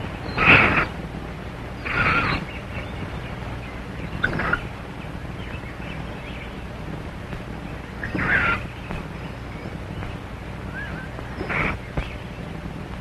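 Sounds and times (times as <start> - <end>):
film soundtrack hiss and hum: 0.0 - 13.0
chimpanzee calls: 8.0 - 8.6.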